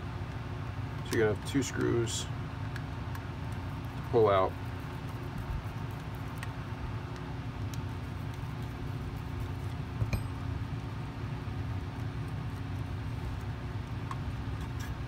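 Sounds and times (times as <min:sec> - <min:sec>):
steady low hum: 0:00.0 - 0:15.0
sharp clink: 0:10.1 - 0:10.5.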